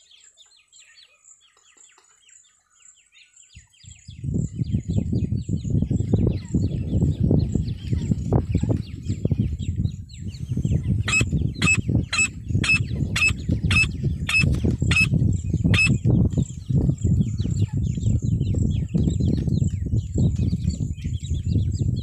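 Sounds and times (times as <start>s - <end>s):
francolin calling: 11.0s - 16.0s.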